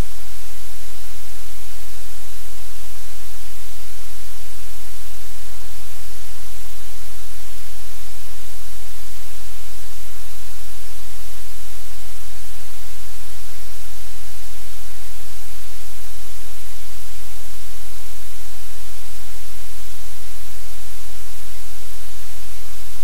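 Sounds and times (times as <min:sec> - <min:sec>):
loud static hiss: 0:00.0 - 0:23.0.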